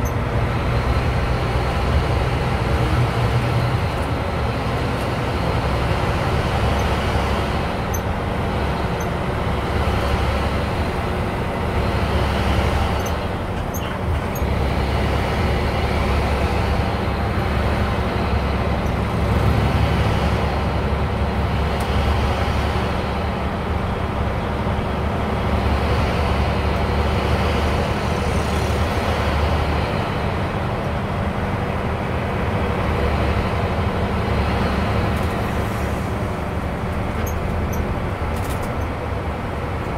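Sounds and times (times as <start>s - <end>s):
bus engine drone: 0.0s - 39.9s
road noise: 0.0s - 39.9s.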